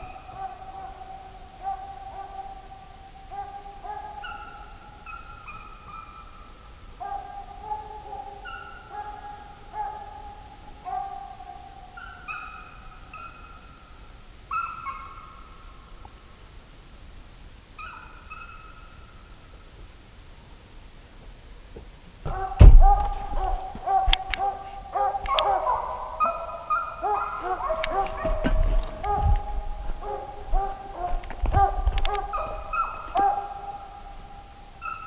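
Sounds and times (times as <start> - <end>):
hounds baying: 0.0 - 6.4, 7.0 - 13.6, 14.5 - 15.4, 22.3 - 35.0.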